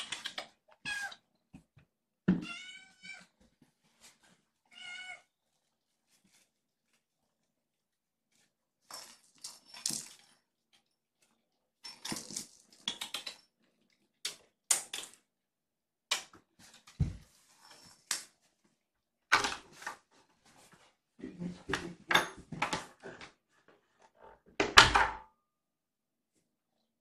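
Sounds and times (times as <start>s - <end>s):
kittens playing with toys: 8.3s - 15.2s, 16.6s - 18.6s.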